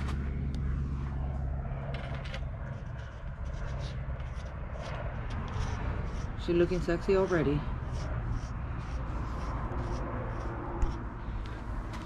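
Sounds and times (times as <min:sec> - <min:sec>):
vehicle engine passing: 0:00.0 - 0:12.0
bike parts clicking and scraping: 0:01.8 - 0:05.6.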